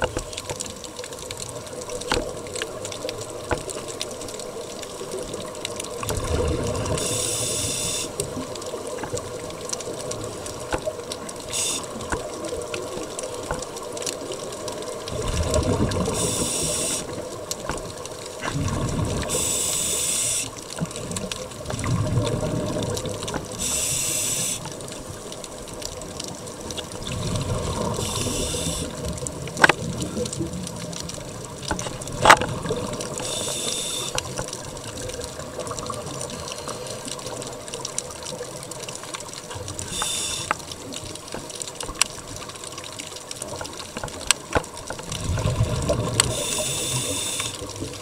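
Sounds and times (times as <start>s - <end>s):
underwater bubbling rumble: 0.0s - 48.0s
regulator breathing hiss: 7.0s - 8.2s, 11.5s - 12.0s, 16.1s - 17.1s, 19.3s - 20.6s, 23.6s - 24.7s, 28.0s - 29.0s, 33.2s - 34.2s, 39.8s - 40.6s, 46.3s - 47.6s.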